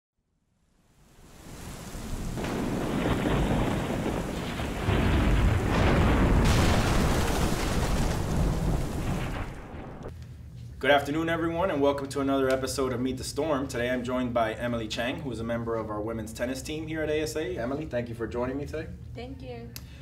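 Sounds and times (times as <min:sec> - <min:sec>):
rain hiss: 0:00.9 - 0:10.1
rolling thunder: 0:01.4 - 0:10.1.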